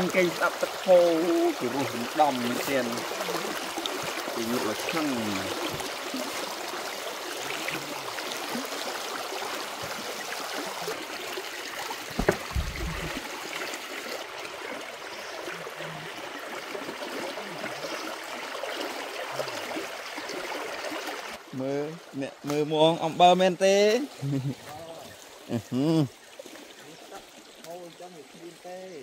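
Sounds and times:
water running: 0.0s - 29.0s
sharp knock with thud: 12.2s - 13.2s.

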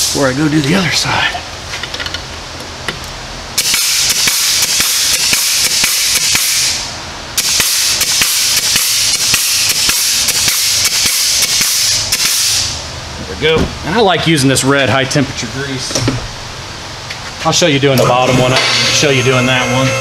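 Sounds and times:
air-powered grease gun hissing: 3.6s - 12.8s.

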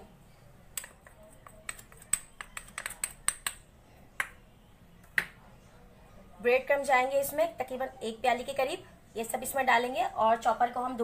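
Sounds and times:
spoon tapping against container: 0.8s - 3.6s.

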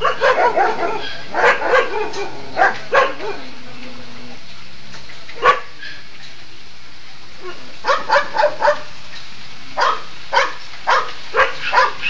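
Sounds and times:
dogs barking: 0.0s - 4.0s, 5.4s - 6.0s, 7.4s - 9.0s, 9.8s - 12.0s.

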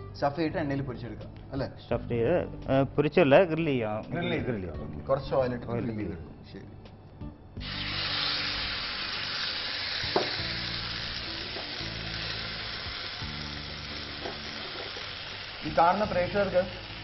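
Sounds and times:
chicken sizzling in hot oil: 7.6s - 17.0s.

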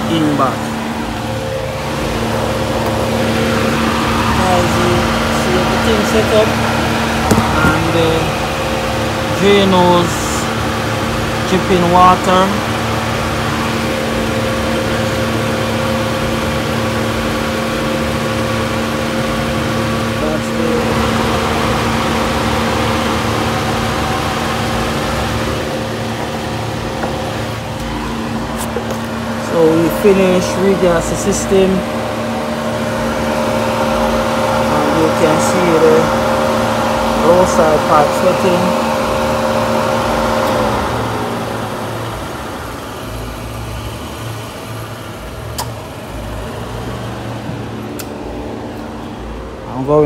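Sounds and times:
car engine idling: 0.0s - 50.0s
sharp click: 45.5s - 45.8s, 47.9s - 48.2s.

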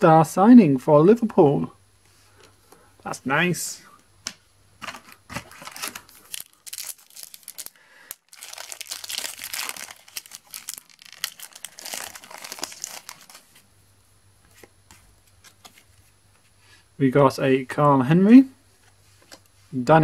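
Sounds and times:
foil packet tearing open: 4.8s - 13.5s
foil packet crinkling: 4.8s - 13.6s.

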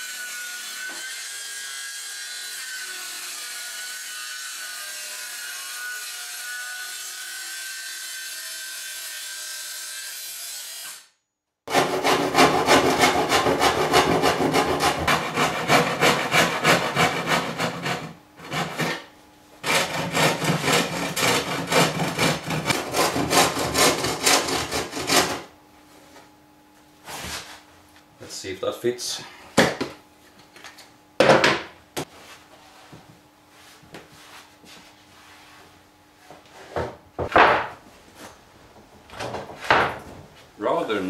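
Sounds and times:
circular saw cutting wood: 0.0s - 11.1s, 11.7s - 25.5s
hand saw cutting board: 0.0s - 11.1s, 11.7s - 25.5s.

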